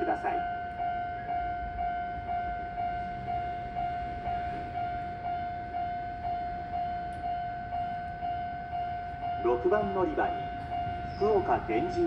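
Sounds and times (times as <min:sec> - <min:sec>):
level crossing warning bell: 0:00.0 - 0:12.0.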